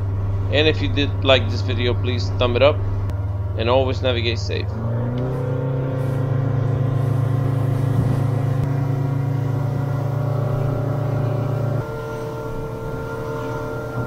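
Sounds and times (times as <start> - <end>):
outboard engine running: 0.0 - 14.0.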